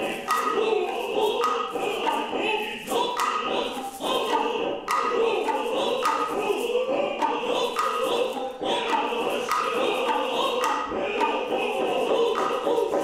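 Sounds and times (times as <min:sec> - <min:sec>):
chorus chanting in unison: 0:00.0 - 0:13.0
drum strikes: 0:00.0 - 0:13.0.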